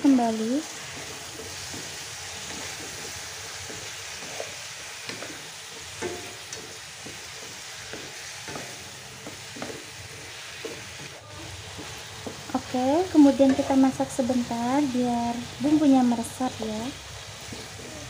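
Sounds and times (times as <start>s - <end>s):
chicken wings sizzling in frying pan: 0.0s - 18.0s
spatula knocking and scraping pan: 0.6s - 14.4s, 17.4s - 17.9s.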